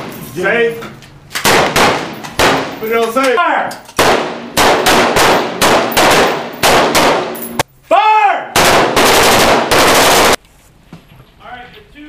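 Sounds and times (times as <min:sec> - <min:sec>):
rapid gunfire echoing: 0:01.4 - 0:02.8, 0:04.0 - 0:07.5, 0:08.6 - 0:10.4.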